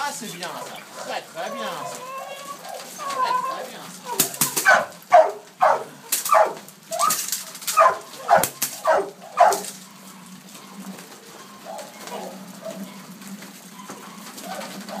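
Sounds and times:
puppy barking: 0.6 - 9.8.

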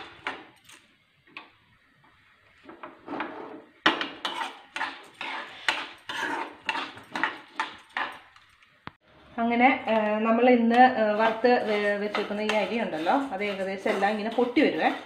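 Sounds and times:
spoon scraping rice in pan: 3.1 - 8.8, 10.7 - 15.0.

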